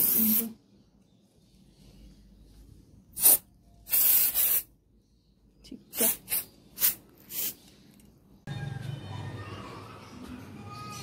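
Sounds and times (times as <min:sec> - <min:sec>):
spray can hissing: 0:00.0 - 0:00.5, 0:03.2 - 0:04.7, 0:06.0 - 0:07.6.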